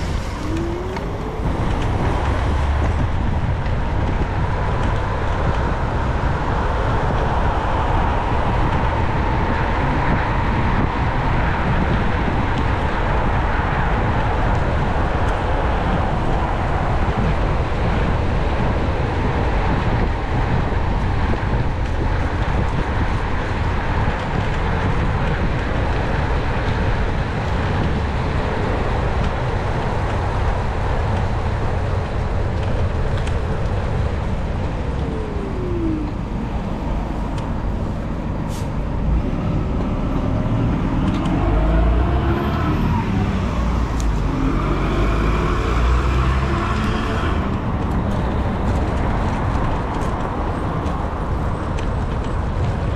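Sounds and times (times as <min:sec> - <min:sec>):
brief falling tone: 0:00.0 - 0:02.3
wind and road noise: 0:00.0 - 0:52.9.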